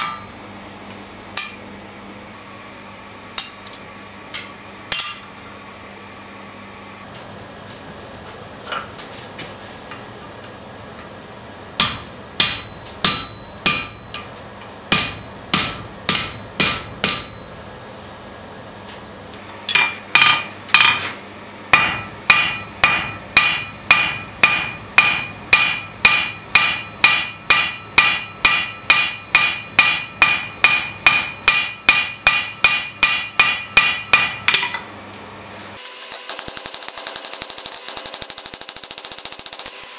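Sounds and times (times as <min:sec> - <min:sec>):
hammer striking steel on anvil: 0:00.0 - 0:00.4, 0:01.4 - 0:01.6, 0:03.4 - 0:05.4, 0:11.8 - 0:17.7, 0:19.7 - 0:21.1, 0:21.7 - 0:35.0.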